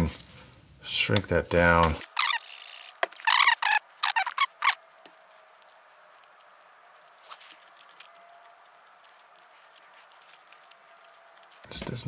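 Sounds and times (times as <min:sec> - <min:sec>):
tubing squeaky rubbing: 0:02.1 - 0:04.8.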